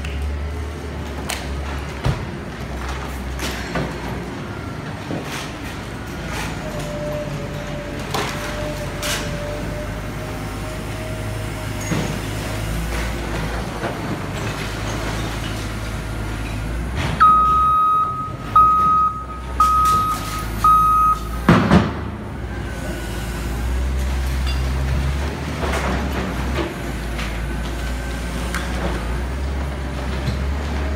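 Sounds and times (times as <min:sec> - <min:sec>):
backup alarm beeping: 0:17.2 - 0:21.5.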